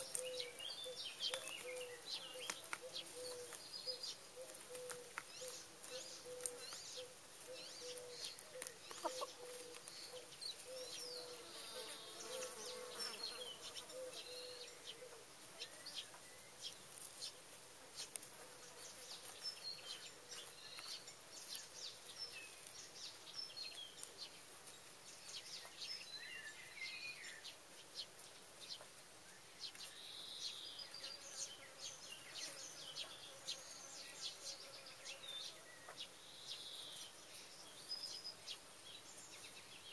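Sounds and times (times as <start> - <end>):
hens pecking and scratching: 0.0 - 39.9
small birds chirping: 0.0 - 39.9
insect buzzing: 11.1 - 14.2.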